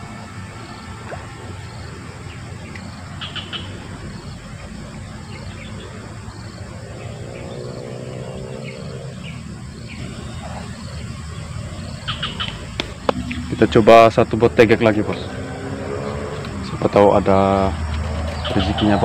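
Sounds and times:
faint droning tone: 0:00.0 - 0:06.8, 0:09.2 - 0:17.0
insect buzz: 0:00.0 - 0:18.9
birds chirping: 0:00.0 - 0:19.0
low hum: 0:12.9 - 0:16.6.

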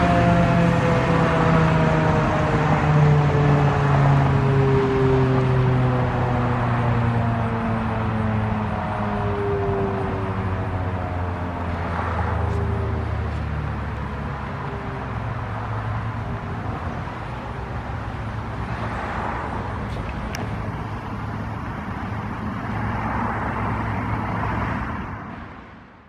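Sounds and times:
siren winding down: 0:00.0 - 0:13.4
cars passing: 0:00.0 - 0:26.0.

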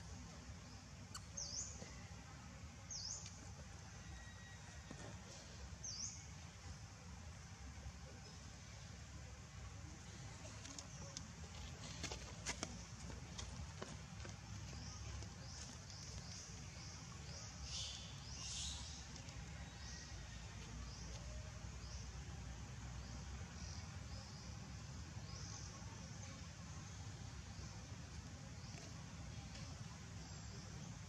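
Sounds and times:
faint high chirp: 0:01.1 - 0:02.1.

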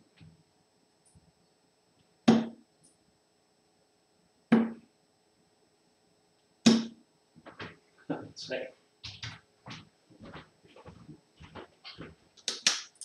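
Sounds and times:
darts thudding into dartboard: 0:02.3 - 0:02.6, 0:04.5 - 0:04.9, 0:06.6 - 0:07.0.

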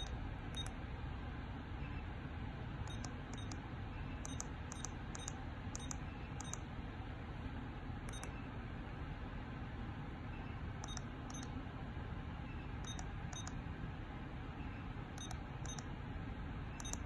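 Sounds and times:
keypad beeps: 0:00.0 - 0:00.8, 0:02.9 - 0:06.6, 0:08.1 - 0:08.4, 0:10.8 - 0:11.5, 0:12.5 - 0:13.6, 0:15.2 - 0:15.9, 0:16.8 - 0:17.0
low background hum: 0:00.0 - 0:17.0.

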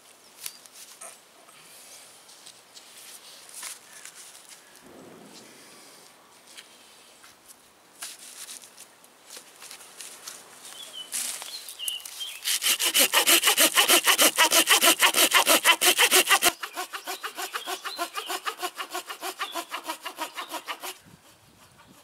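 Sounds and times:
hand saw cutting branch: 0:12.4 - 0:21.1.

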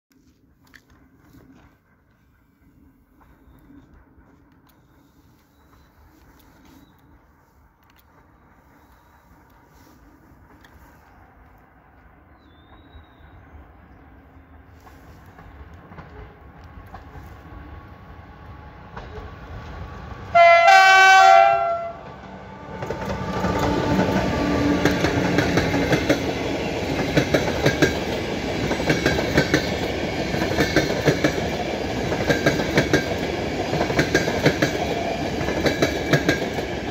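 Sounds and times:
train passing rumble: 0:00.2 - 0:36.9
train horn blast: 0:20.3 - 0:24.8.

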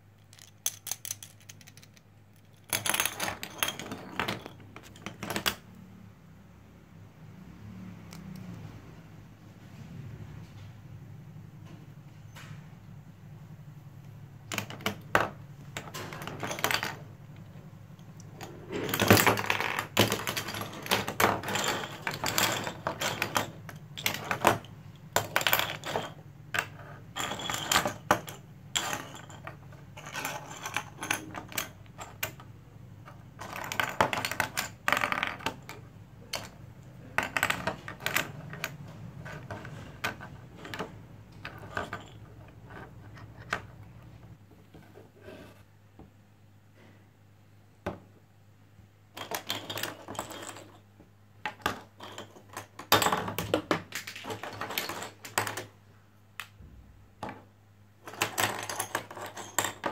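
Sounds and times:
plastic building pieces clicking: 0:00.2 - 0:02.0.

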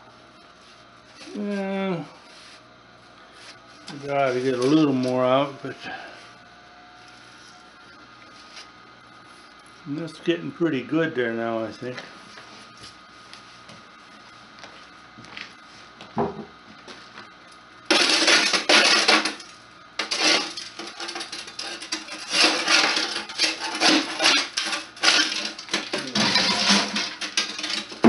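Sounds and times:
soot scraping and rattling: 0:20.0 - 0:28.0.

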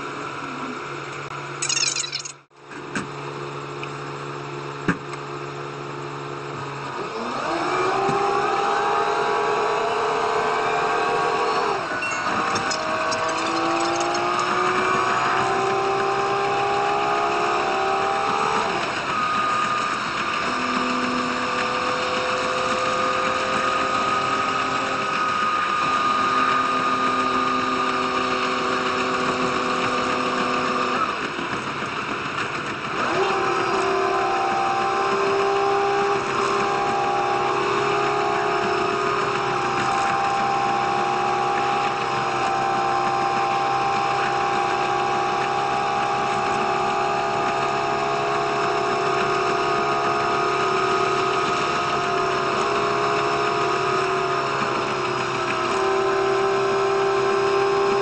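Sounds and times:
diesel train engine accelerating: 0:03.0 - 0:58.0.

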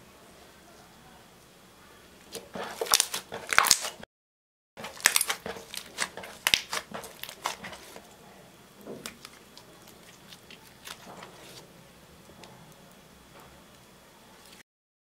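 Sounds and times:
slime squelching and popping: 0:02.3 - 0:04.0, 0:04.8 - 0:08.0.

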